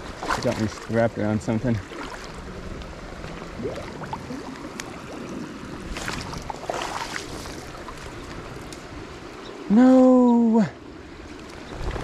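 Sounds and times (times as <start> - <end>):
water splashing and sloshing: 0.0 - 9.6, 11.2 - 12.0
loud splashes: 5.9 - 7.5.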